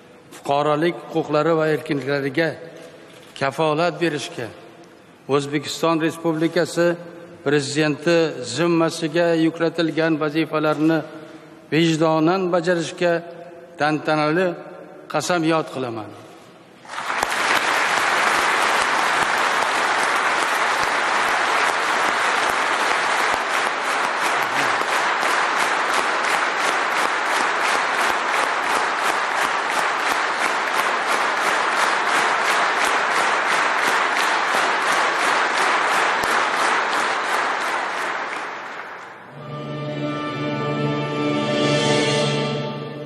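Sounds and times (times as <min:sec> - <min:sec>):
audience clapping in rhythm: 0:16.8 - 0:39.5
orchestral music with held chords: 0:39.3 - 0:43.0.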